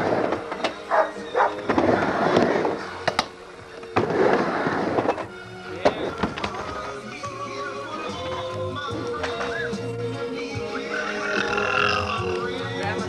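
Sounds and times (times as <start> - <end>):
skateboard wheels rolling on ramp: 0.0 - 0.8, 1.5 - 5.3.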